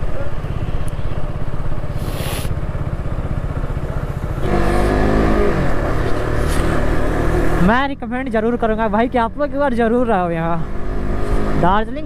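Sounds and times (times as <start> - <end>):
motorcycle engine running: 0.0 - 12.0
short hiss: 1.9 - 2.6.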